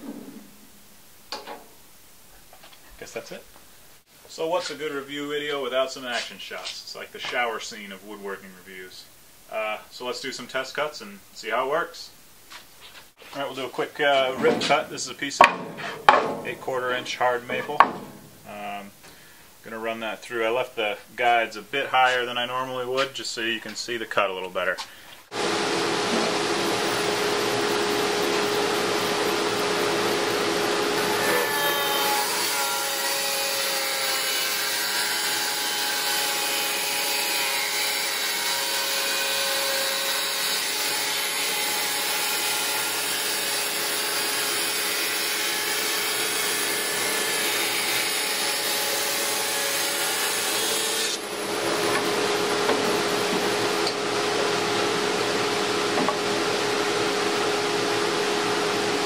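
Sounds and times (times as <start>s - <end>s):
band saw cutting wood: 13.4s - 18.4s, 25.3s - 56.9s
dust collector humming: 25.3s - 33.4s, 45.8s - 59.0s.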